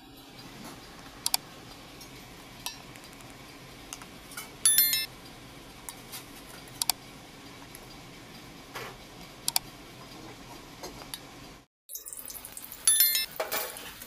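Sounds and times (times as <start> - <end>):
bright bell-like ding: 4.7 - 5.1, 12.9 - 13.3.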